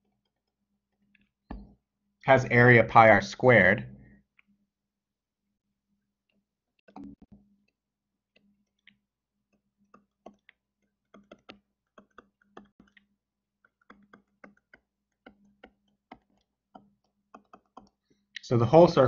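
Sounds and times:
stylus tapping tablet screen: 0:00.0 - 0:01.9, 0:06.2 - 0:18.4.

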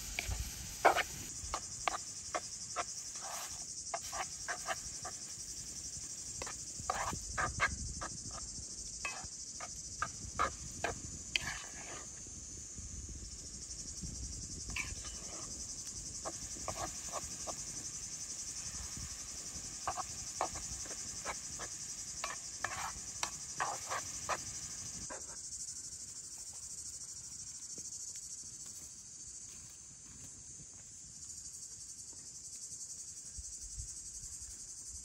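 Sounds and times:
high-pitched insect chorus: 0:00.0 - 0:35.0
spatula scraping metal pan: 0:00.2 - 0:05.2, 0:06.4 - 0:07.7, 0:09.0 - 0:09.3, 0:10.4 - 0:12.1, 0:14.7 - 0:15.6, 0:16.2 - 0:17.6, 0:19.5 - 0:24.7.

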